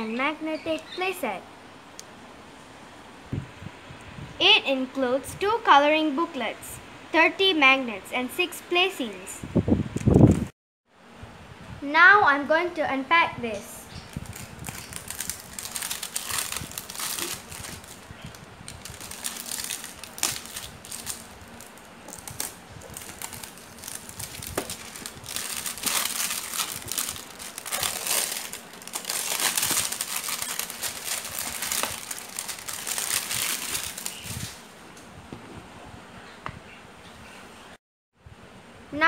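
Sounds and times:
plastic shrink-wrap crinkling: 14.1s - 34.6s.

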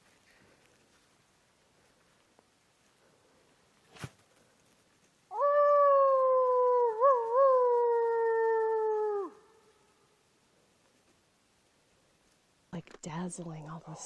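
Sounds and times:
man imitating wolf howl: 5.3s - 9.6s.

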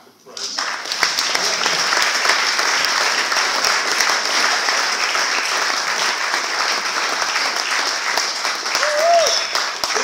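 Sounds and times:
audience applauding: 0.4s - 10.0s.

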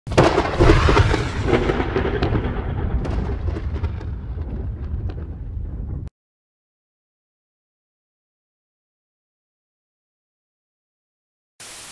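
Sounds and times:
sharp crackles: 0.1s - 6.1s
thunder crack and rumble: 0.1s - 6.1s.

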